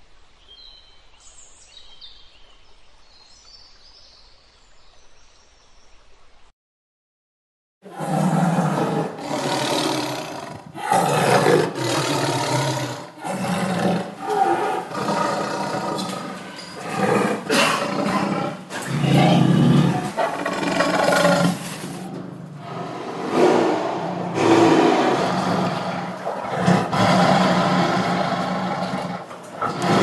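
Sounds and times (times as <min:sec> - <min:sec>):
tigers roaring and growling: 0:07.9 - 0:30.0.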